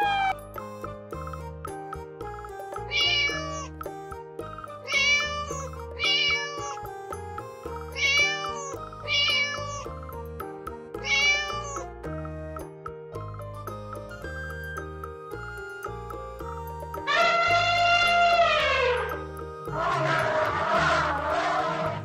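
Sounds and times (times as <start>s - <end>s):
cat meowing: 0.0s - 0.3s, 2.9s - 3.7s, 4.9s - 6.8s, 8.0s - 9.9s, 11.0s - 11.8s, 17.1s - 19.2s
background music: 0.0s - 22.0s.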